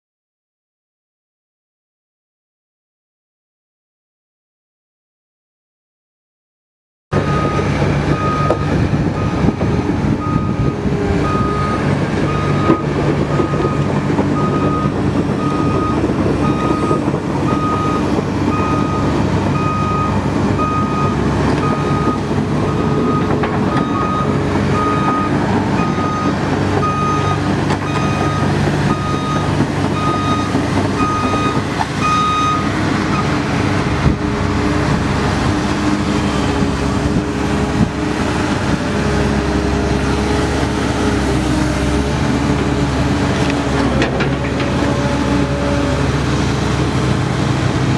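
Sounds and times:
reversing alarm beeping: 7.2s - 33.4s
diesel excavator engine running: 7.2s - 47.9s.

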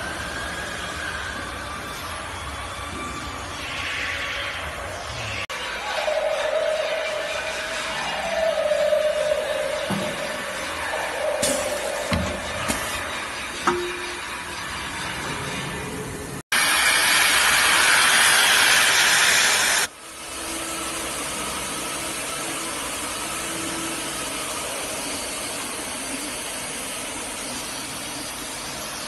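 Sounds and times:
loud compressed air hiss: 16.6s - 19.9s.

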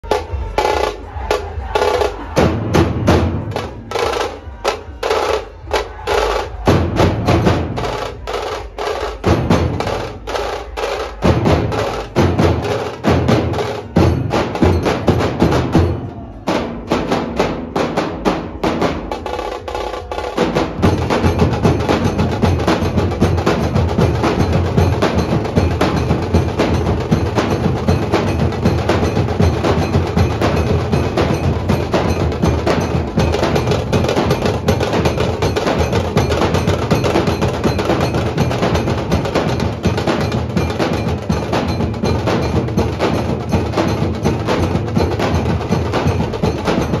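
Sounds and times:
heavy barrel drum beats: 0.0s - 47.0s.

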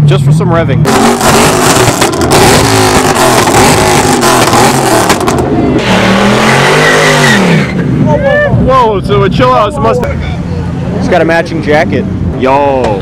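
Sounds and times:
car engine revving: 0.1s - 13.0s
exhaust pops: 0.8s - 6.6s.

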